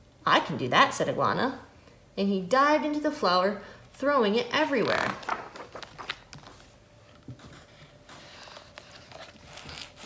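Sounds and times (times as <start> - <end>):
book page turning: 4.8 - 10.0.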